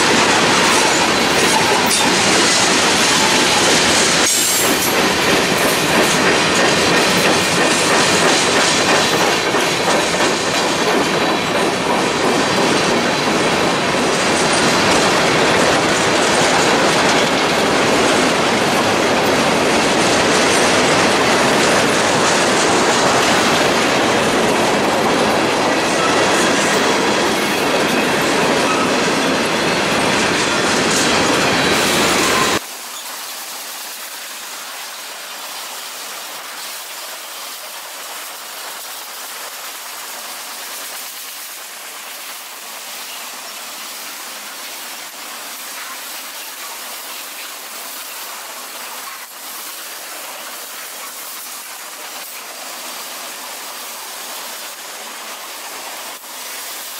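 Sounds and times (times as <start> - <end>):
train wheels rumbling and clattering: 0.0 - 56.9.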